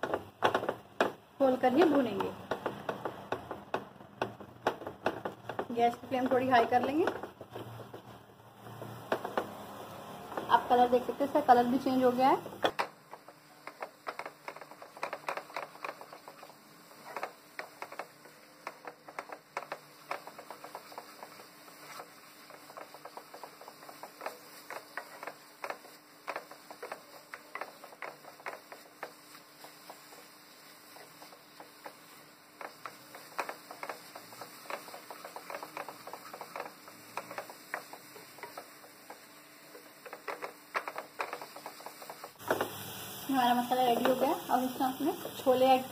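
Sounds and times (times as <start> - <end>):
spatula scraping frying pan: 13.0 - 42.6.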